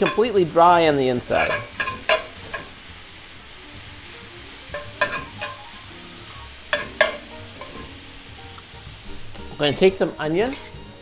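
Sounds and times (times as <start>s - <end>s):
meat sizzling in a skillet: 0.0s - 11.0s
metal spatula scraping pan: 1.2s - 2.8s, 4.7s - 5.6s, 6.7s - 8.0s, 9.1s - 10.9s.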